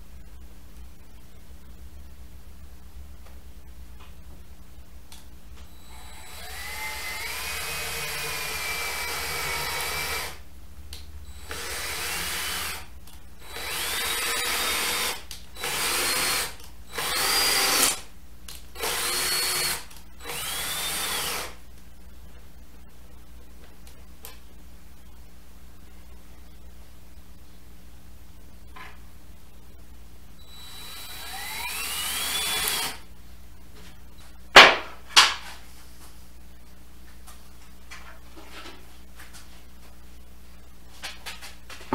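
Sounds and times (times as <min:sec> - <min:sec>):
cordless drill driving into wood: 0:05.9 - 0:10.4, 0:13.4 - 0:18.0, 0:18.8 - 0:21.6, 0:30.5 - 0:33.0.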